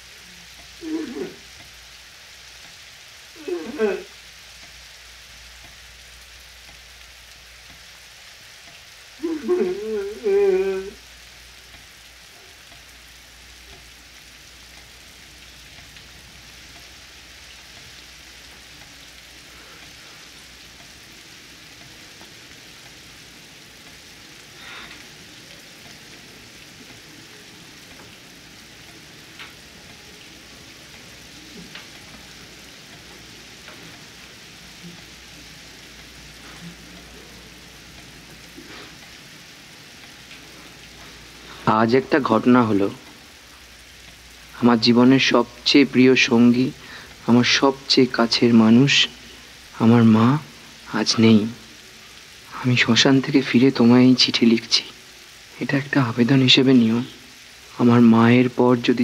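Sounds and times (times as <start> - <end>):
steady background hiss: 0.0 - 59.0
man wailing: 0.8 - 1.4, 3.4 - 4.1, 9.2 - 11.0
faint clicks: 6.6 - 6.8.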